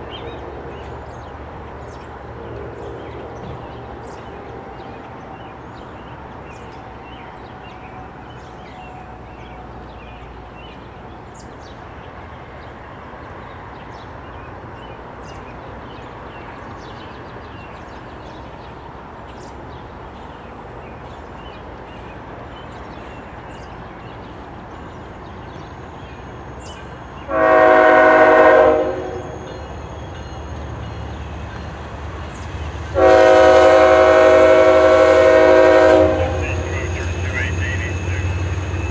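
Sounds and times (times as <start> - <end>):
locomotive air horn blast: 27.3 - 29.5, 32.9 - 38.2.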